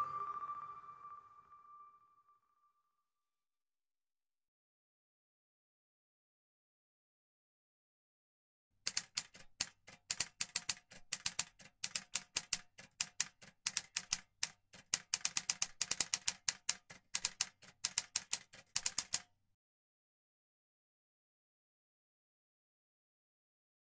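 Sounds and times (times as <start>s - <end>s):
typewriter key clicks: 8.9s - 19.4s
typewriter bell ring: 17.2s - 19.5s.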